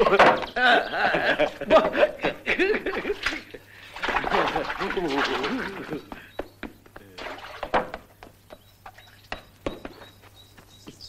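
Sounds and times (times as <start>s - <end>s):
footsteps on dry ground: 7.9s - 11.0s.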